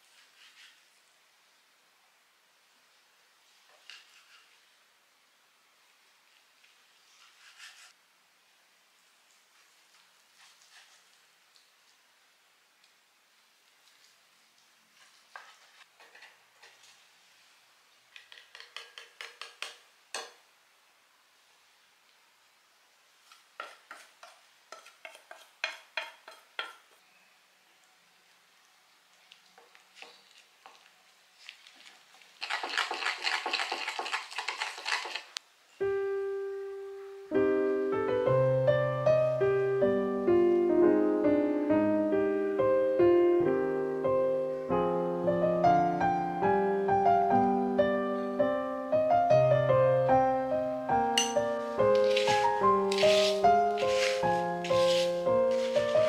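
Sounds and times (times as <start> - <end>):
fork beating eggs in glass bowl: 32.4 - 35.4, 51.9 - 54.1
piano music: 35.8 - 56.0.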